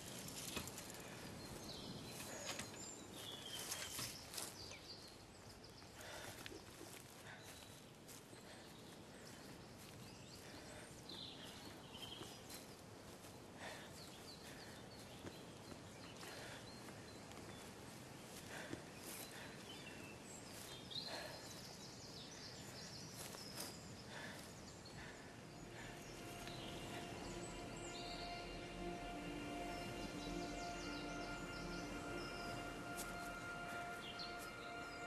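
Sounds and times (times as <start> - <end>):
steady low hiss: 23.0 - 35.0.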